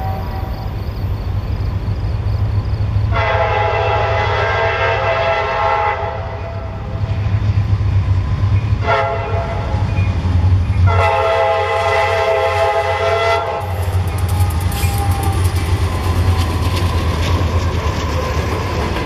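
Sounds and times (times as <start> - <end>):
locomotive air horn: 0.0 - 0.8, 3.1 - 7.0, 8.8 - 9.9, 10.8 - 15.7
diesel engines rumbling: 0.0 - 19.0.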